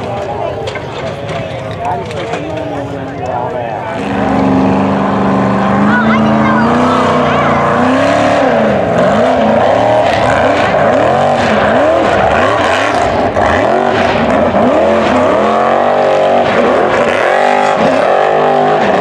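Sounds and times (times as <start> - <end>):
buggy engine revving hard: 3.8 - 19.0.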